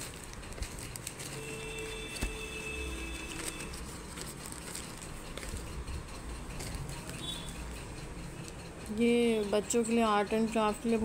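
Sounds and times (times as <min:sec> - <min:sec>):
plastic bag rustling and crinkling: 0:00.0 - 0:05.7.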